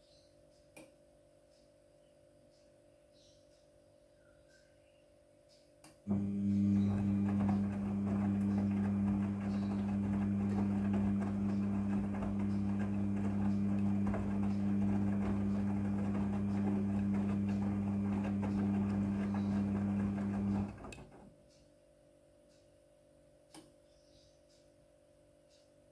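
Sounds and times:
laundry rustling in drum: 0:06.1 - 0:21.2
washing machine motor hum: 0:06.1 - 0:21.4.

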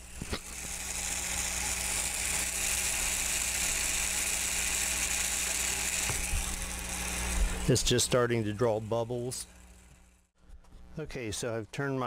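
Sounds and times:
vacuum pump rushing hiss: 0:05.3 - 0:08.1.

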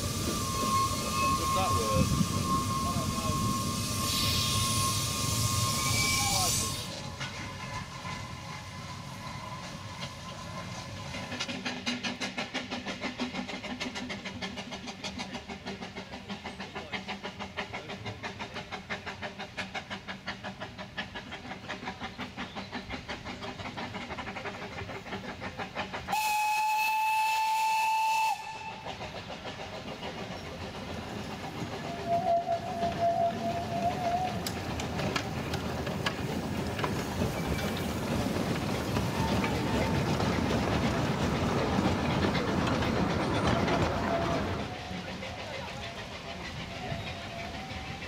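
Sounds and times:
steam whistle blast: 0:00.0 - 0:07.0, 0:26.1 - 0:28.9, 0:31.9 - 0:34.5
steam locomotive exhaust beating: 0:00.0 - 0:48.0.

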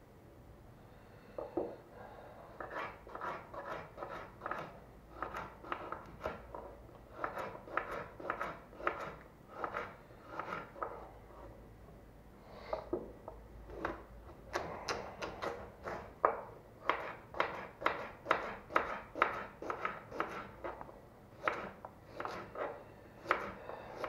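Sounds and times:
knife chopping on wooden board: 0:02.6 - 0:06.5, 0:07.1 - 0:11.0, 0:15.2 - 0:20.8, 0:21.4 - 0:24.0.

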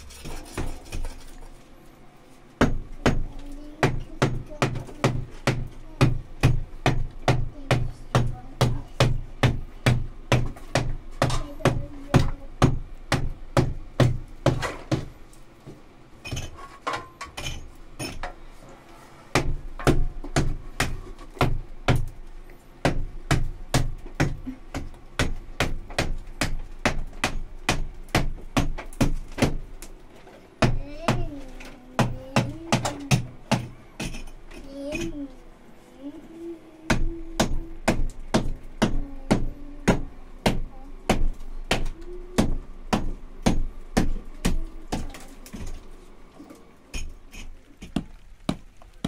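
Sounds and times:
hammer knocking on wall: 0:02.6 - 0:15.1, 0:32.0 - 0:34.3.

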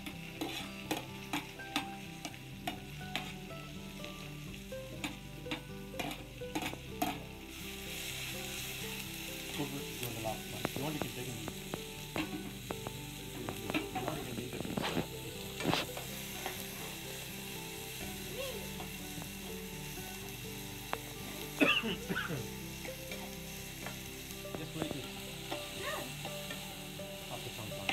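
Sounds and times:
onions sizzling in a pan: 0:00.0 - 0:27.9
metal spoon scraping a pan: 0:00.1 - 0:03.5, 0:05.0 - 0:07.3.

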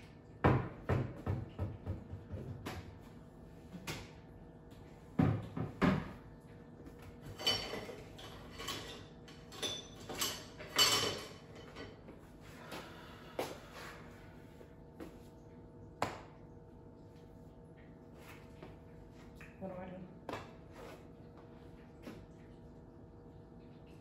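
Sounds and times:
dishes clattering and clinking: 0:05.1 - 0:12.2.

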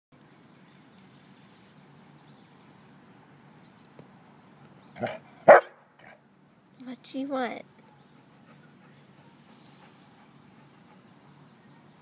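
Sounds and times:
dog barking: 0:05.0 - 0:06.2.

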